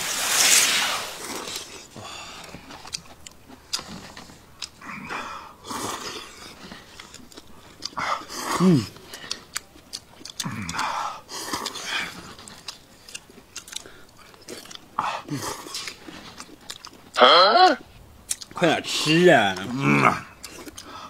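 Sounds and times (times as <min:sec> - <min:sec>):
people slurping and chewing noodles: 0:00.0 - 0:21.0
short voiced sounds: 0:17.2 - 0:17.8.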